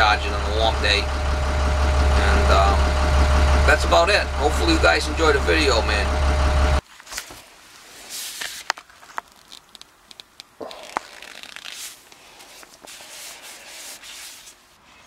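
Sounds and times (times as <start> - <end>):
low engine idling hum: 0.0 - 6.8
gloved hands rustling and rubbing: 7.0 - 15.0.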